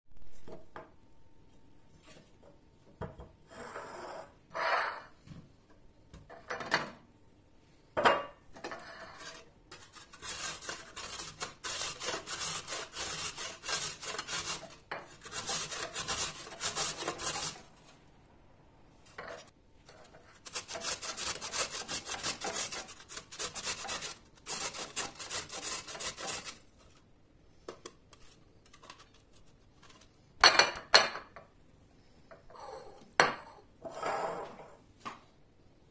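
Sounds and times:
carrot grating on metal grater: 0:08.7 - 0:17.7, 0:20.4 - 0:26.6.

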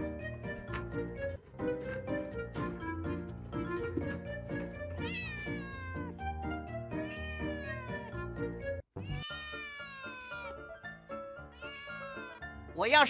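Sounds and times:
kitten meowing: 0:05.0 - 0:06.1, 0:06.9 - 0:08.1, 0:09.0 - 0:10.6, 0:11.5 - 0:12.4.

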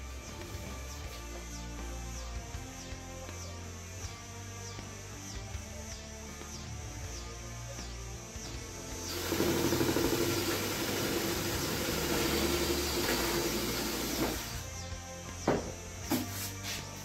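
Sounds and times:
cordless drill running: 0:09.0 - 0:14.7.

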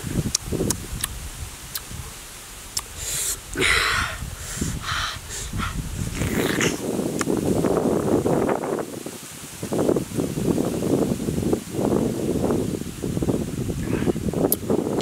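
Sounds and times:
hissing mouth and breath noises: 0:00.2 - 0:07.6
person chewing with lip-smacking: 0:00.3 - 0:01.1.

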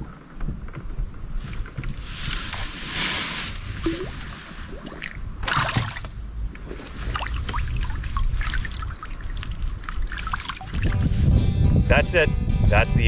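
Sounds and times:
paddle splashing water: 0:01.5 - 0:11.0.

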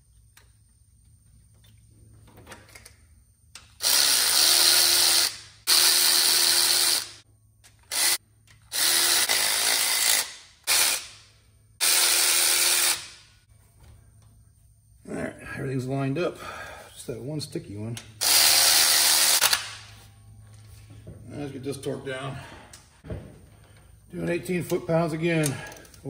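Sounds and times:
power tool motor spinning: 0:03.8 - 0:07.2, 0:07.9 - 0:11.1, 0:11.8 - 0:13.1, 0:18.2 - 0:19.7.

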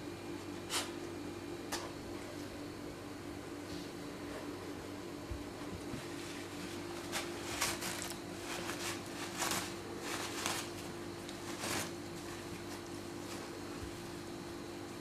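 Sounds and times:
steady low hum: 0:00.0 - 0:15.0
paper rustling and ripping: 0:06.3 - 0:13.5.

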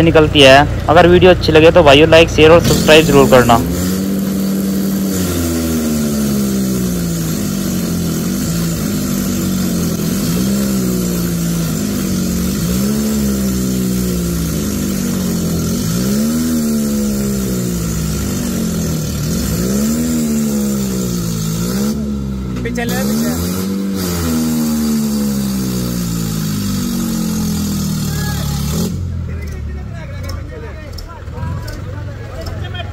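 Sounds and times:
diesel tractor engines labouring: 0:00.0 - 0:32.9
wheel spinning in dirt: 0:02.5 - 0:21.9.

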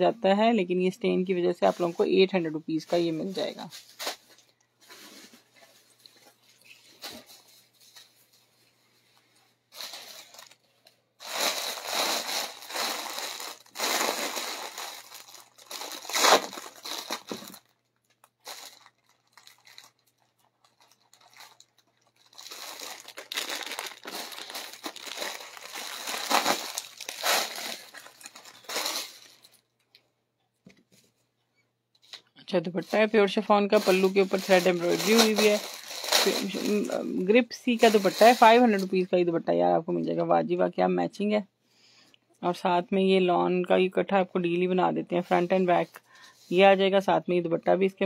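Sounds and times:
fabric rustling and crinkling: 0:01.5 - 0:29.6, 0:32.7 - 0:39.0.

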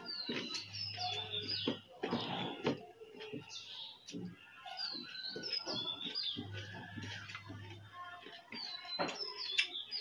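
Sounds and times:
wet chewing and smacking: 0:00.0 - 0:01.8, 0:05.0 - 0:10.0
birds chirping: 0:00.0 - 0:10.0.

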